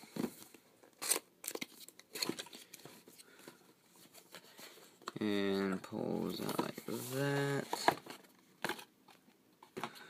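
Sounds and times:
box rustling: 6.2s - 10.0s.

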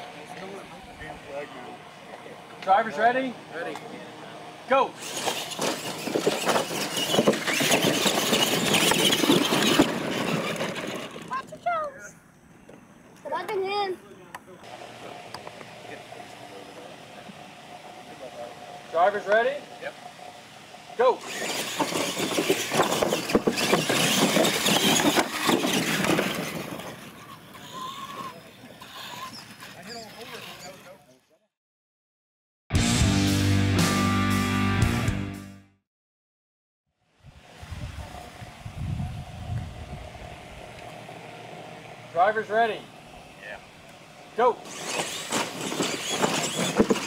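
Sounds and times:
electric motors running: 0.0s - 11.7s, 12.6s - 31.2s, 37.4s - 47.0s
toy trucks knocking and clattering: 5.0s - 11.6s, 21.2s - 30.8s, 44.7s - 47.0s
tyres scrabbling on dirt: 5.0s - 11.8s, 21.2s - 30.8s, 44.6s - 47.0s
trucks knocking on landing: 21.3s - 27.1s, 44.7s - 47.0s.

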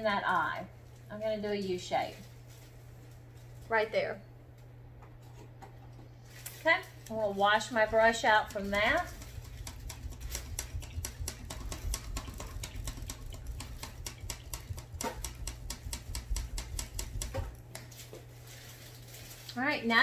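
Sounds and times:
paintbrush tapping a water cup: 8.2s - 17.7s.

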